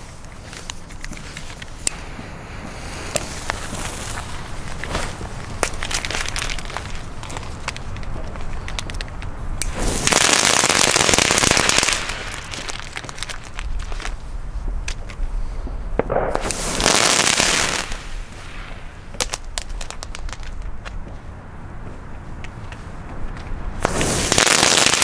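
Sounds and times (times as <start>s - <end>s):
crackling pops: 0.0s - 14.2s, 15.9s - 21.0s
fireworks hissing blasts: 1.3s - 7.6s, 9.6s - 14.1s, 15.5s - 20.6s, 23.8s - 25.0s.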